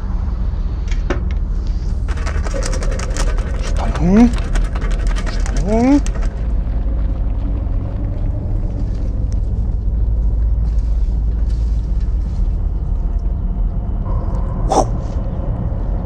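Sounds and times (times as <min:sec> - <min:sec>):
steady low rumble: 0:00.0 - 0:16.0
sharp crackle: 0:01.8 - 0:13.3
paper rustling in a box: 0:02.1 - 0:06.3.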